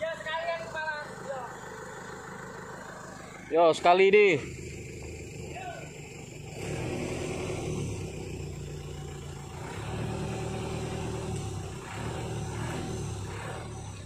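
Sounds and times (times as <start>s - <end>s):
diesel truck engine running: 0.0s - 14.0s.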